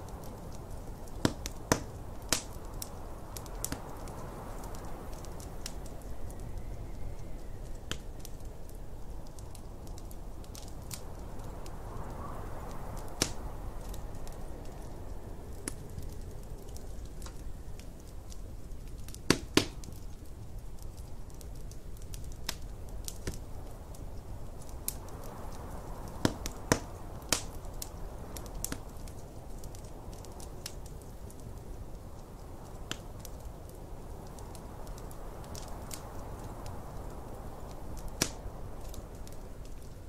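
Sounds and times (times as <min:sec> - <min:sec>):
snowstorm wind rumble: 0:00.0 - 0:40.0
wood fire crackling: 0:00.0 - 0:40.0
fire popping sharply: 0:00.1 - 0:15.0, 0:35.5 - 0:40.0.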